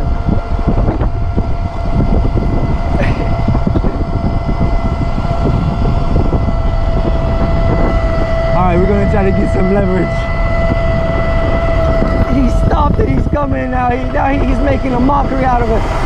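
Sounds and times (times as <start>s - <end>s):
electric motor whine: 0.0s - 16.0s
tyres rumbling on road: 0.0s - 16.0s
wind rush on microphone: 0.0s - 16.0s.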